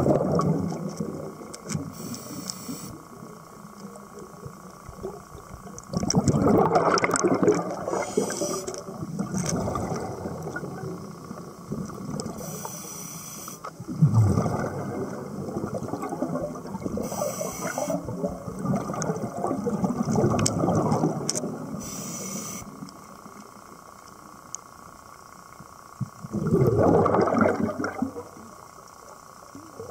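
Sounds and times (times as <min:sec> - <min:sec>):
underwater exhaled bubbles gurgling: 0:00.0 - 0:13.0, 0:13.6 - 0:23.6, 0:26.0 - 0:29.9
regulator hissing inhalations: 0:01.9 - 0:03.0, 0:07.9 - 0:08.8, 0:12.4 - 0:13.7, 0:17.0 - 0:18.0, 0:21.8 - 0:22.8.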